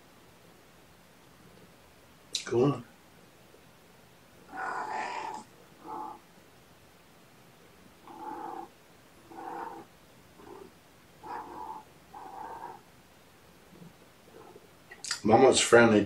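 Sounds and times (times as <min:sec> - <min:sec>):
cat meowing: 0:04.5 - 0:06.2, 0:08.0 - 0:12.8.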